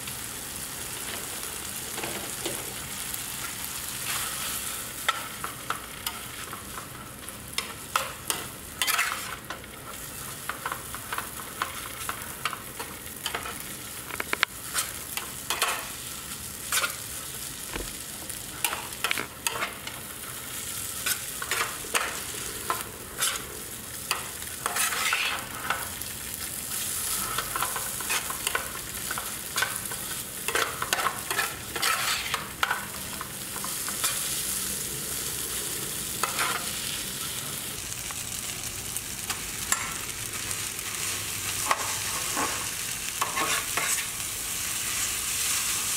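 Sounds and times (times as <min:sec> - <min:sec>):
noodles sizzling in a frying pan: 0:00.0 - 0:45.9
spatula scraping a pan: 0:07.5 - 0:12.6, 0:14.6 - 0:16.0, 0:16.6 - 0:17.1, 0:20.6 - 0:23.5, 0:24.1 - 0:26.0, 0:26.8 - 0:34.4, 0:36.2 - 0:36.7, 0:41.6 - 0:44.2.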